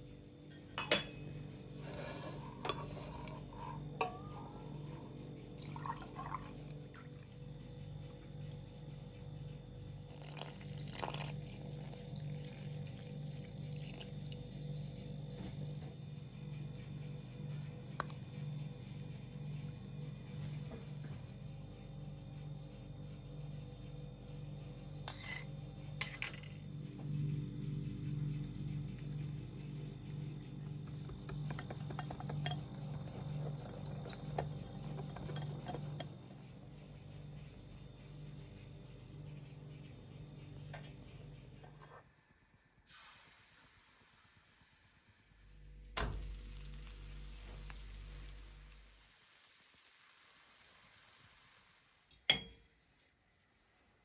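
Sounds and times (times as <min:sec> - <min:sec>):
milk pouring: 0:05.6 - 0:07.1, 0:10.1 - 0:14.6, 0:28.1 - 0:36.3.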